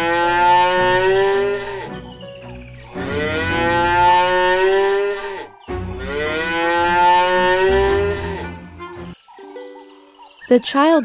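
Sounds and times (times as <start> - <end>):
cow mooing: 0.0 - 2.0, 2.9 - 8.8.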